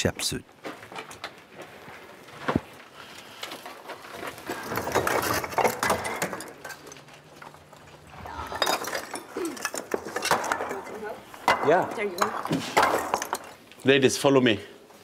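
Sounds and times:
stones clinking: 0:04.0 - 0:13.7.

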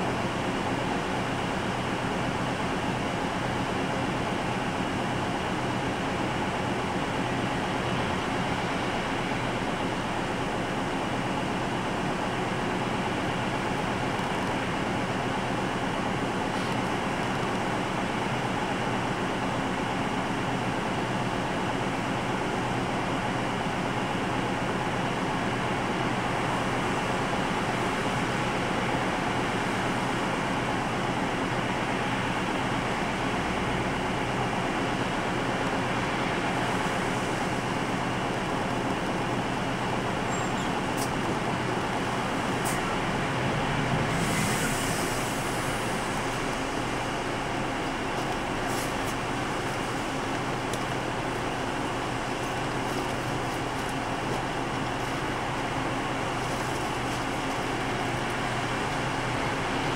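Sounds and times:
bus diesel engine idling: 0:00.0 - 0:59.9
brief air hiss: 0:44.1 - 0:46.2.

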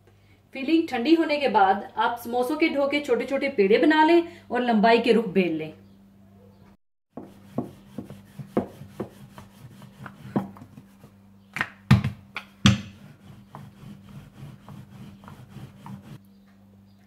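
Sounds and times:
rolling pin knocking on board: 0:07.1 - 0:10.9, 0:11.9 - 0:13.7.

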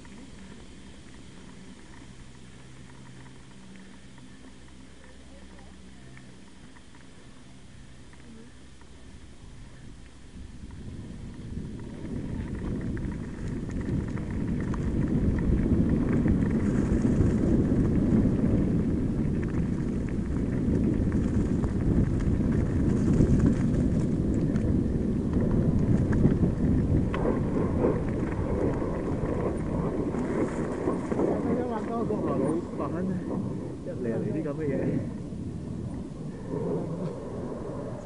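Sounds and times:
small clicks and rattles: 0:00.0 - 0:09.3, 0:09.9 - 0:33.1
wind on microphone: 0:09.1 - 0:38.0
tyres rumbling on gravel: 0:09.6 - 0:38.0.

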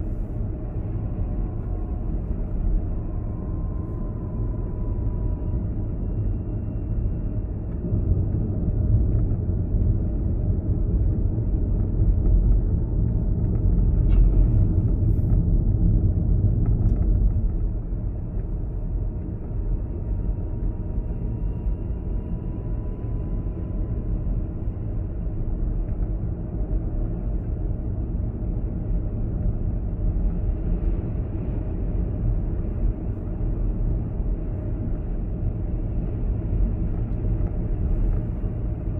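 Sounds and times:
car engine and tyres rumbling: 0:00.0 - 0:38.9
faint whine: 0:00.0 - 0:38.9.

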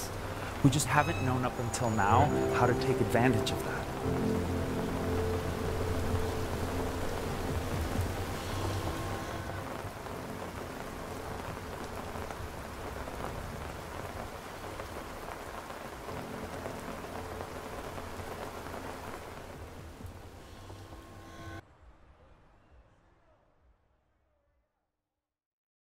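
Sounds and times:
rain falling on pavement: 0:00.0 - 0:21.6
low rumble: 0:03.8 - 0:10.1.

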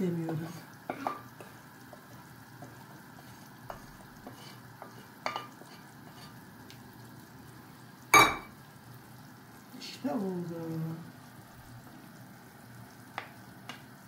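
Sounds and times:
faint sizzle: 0:00.0 - 0:14.0
spoon stirring in a pot: 0:00.1 - 0:06.5.

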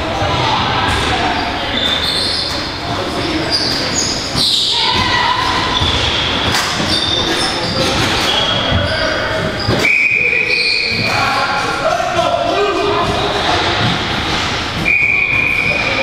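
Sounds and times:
shoes squeaking on floor: 0:00.2 - 0:11.9, 0:12.7 - 0:16.0
people shouting: 0:04.3 - 0:06.5.

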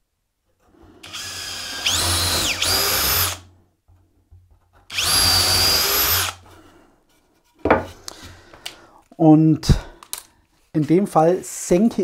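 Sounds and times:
cordless drill boring into wood: 0:01.0 - 0:03.5, 0:04.9 - 0:06.5.

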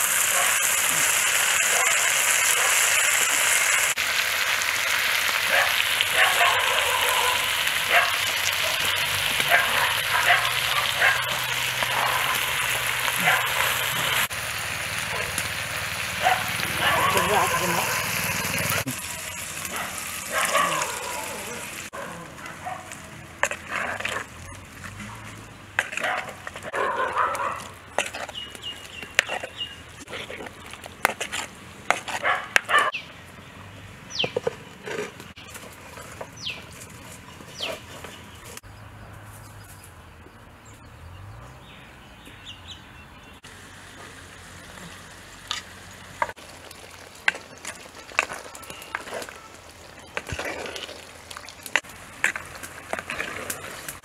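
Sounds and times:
ladle scraping a clay pot: 0:27.6 - 0:32.7, 0:47.3 - 0:54.0.

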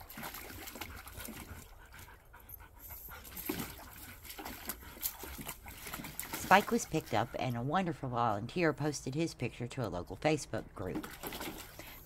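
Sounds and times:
dogs panting: 0:00.2 - 0:08.0.

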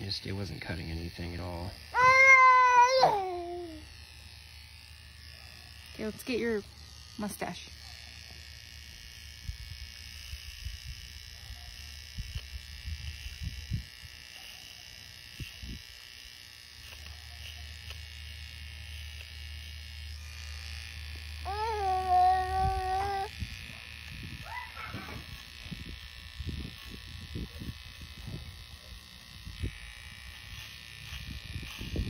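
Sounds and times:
pet clipper buzzing: 0:00.0 - 0:32.0
dog whining: 0:02.0 - 0:03.8, 0:21.5 - 0:23.3, 0:24.4 - 0:25.2.

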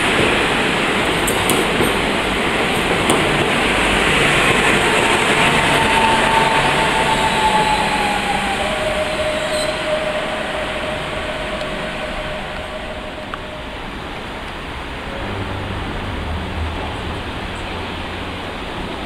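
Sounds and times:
train wheels rumbling on rail: 0:00.0 - 0:19.0
brake squeal: 0:04.3 - 0:15.3.

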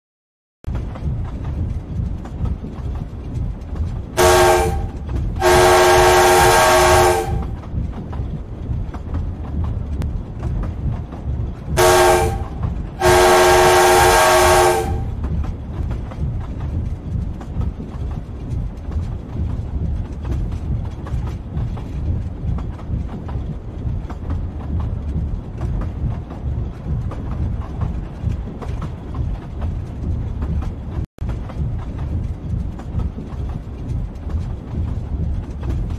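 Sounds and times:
steam locomotive rumbling: 0:00.7 - 0:35.9
steam whistle blowing: 0:04.2 - 0:07.5, 0:11.8 - 0:15.1.

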